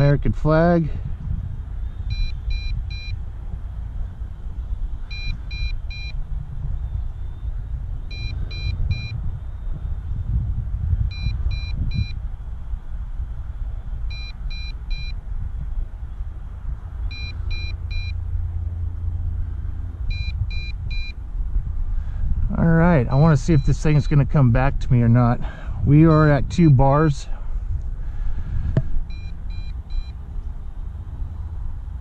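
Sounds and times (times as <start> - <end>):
steady low rumble: 0.0 - 32.0
remote controller warning beeps: 2.0 - 3.2, 5.1 - 6.2, 8.1 - 9.2, 11.1 - 12.2, 14.1 - 15.2, 17.1 - 18.2, 20.1 - 21.2, 23.4 - 24.3, 29.1 - 30.2.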